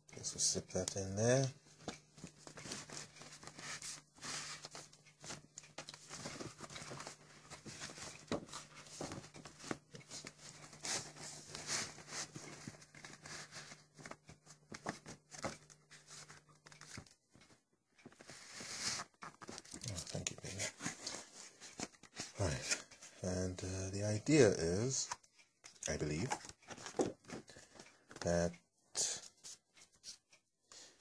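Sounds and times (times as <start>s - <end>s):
paper and card rustling: 1.8s - 23.2s, 26.0s - 28.2s.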